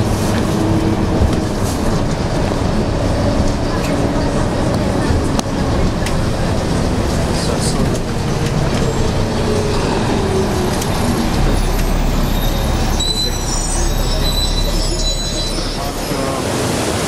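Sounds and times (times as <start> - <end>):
vehicle low rumble: 0.0 - 16.4
thin high squeals: 11.6 - 16.4.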